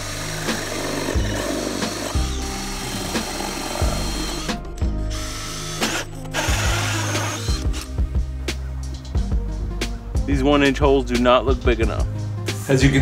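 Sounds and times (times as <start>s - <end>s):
cordless drill boring through wood: 0.0s - 7.9s.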